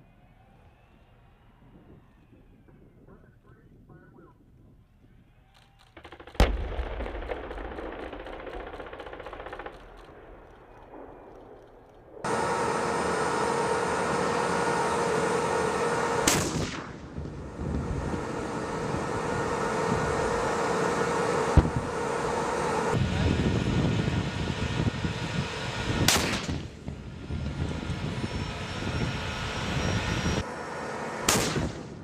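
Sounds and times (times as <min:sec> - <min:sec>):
turbine engine whining: 0:00.0 - 0:32.0
distant machine-gun fire: 0:05.8 - 0:12.3, 0:16.2 - 0:17.3, 0:26.0 - 0:26.9, 0:31.3 - 0:32.0
tank gun firing: 0:05.8 - 0:12.3, 0:16.2 - 0:17.5, 0:26.0 - 0:27.0, 0:31.3 - 0:32.0.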